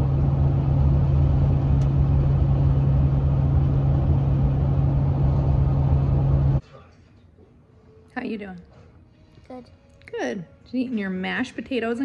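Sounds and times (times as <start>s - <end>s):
road and engine drone in car: 0.0s - 6.6s.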